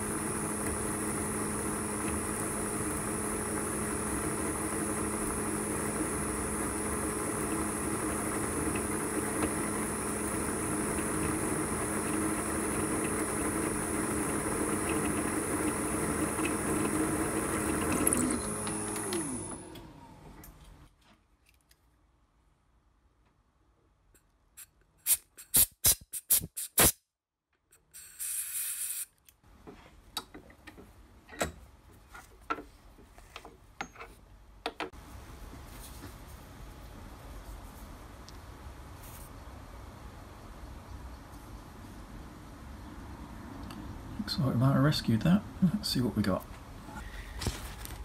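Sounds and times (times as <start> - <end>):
spindle winding down: 0.0 - 20.2
milling machine motor hum: 0.0 - 20.4.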